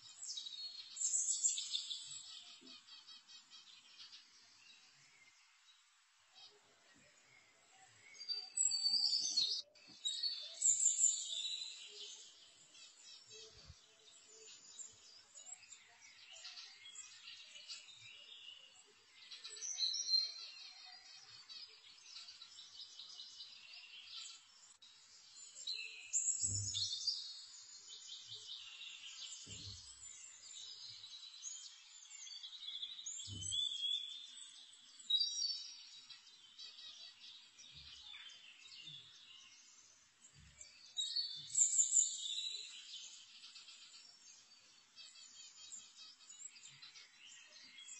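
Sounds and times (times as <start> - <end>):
birds chirping: 0.0 - 47.9.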